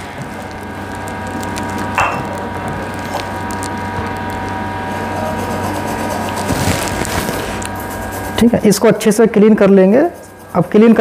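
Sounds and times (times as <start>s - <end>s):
steady hum: 0.0s - 11.0s
brush scrubbing circuit board: 4.4s - 11.0s.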